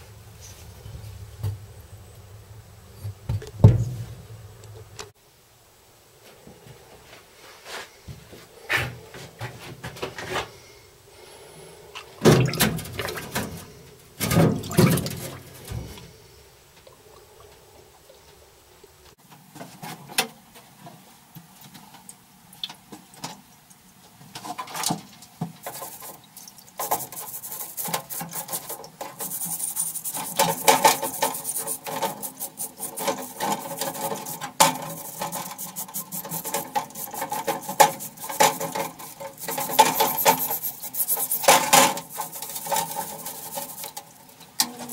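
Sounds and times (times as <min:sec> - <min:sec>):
steady hum: 0:00.0 - 0:07.0, 0:26.8 - 0:44.9
rapid scrubbing and rubbing: 0:25.6 - 0:26.2, 0:26.8 - 0:44.9.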